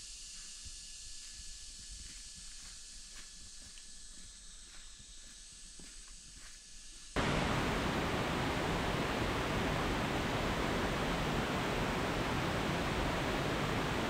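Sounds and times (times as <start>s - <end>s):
loud steady rushing noise: 7.2s - 14.0s.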